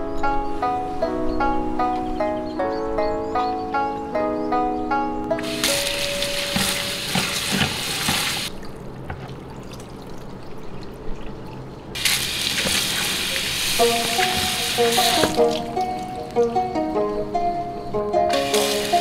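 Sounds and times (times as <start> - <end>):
tap water running into colander: 5.4 - 11.4, 12.0 - 16.1, 18.3 - 19.0.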